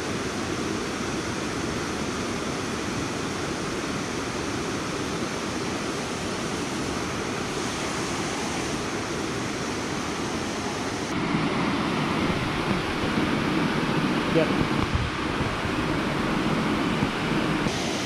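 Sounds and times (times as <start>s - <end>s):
river water rushing past rocks: 0.0s - 18.0s.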